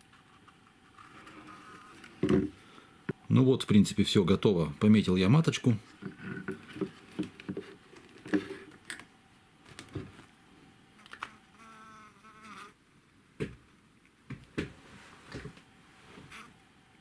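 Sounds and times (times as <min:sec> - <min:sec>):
honeybee buzzing: 0:01.2 - 0:02.0, 0:11.2 - 0:12.8, 0:16.3 - 0:16.5.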